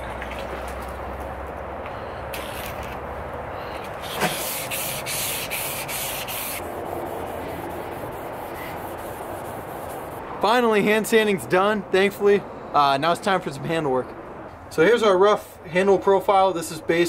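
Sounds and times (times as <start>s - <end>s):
sandpaper rasping on steel blade: 4.0s - 10.2s.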